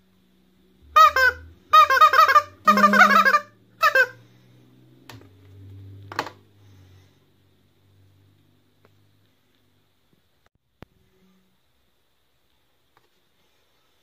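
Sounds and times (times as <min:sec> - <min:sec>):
rubber chicken squawks: 0:01.0 - 0:04.2.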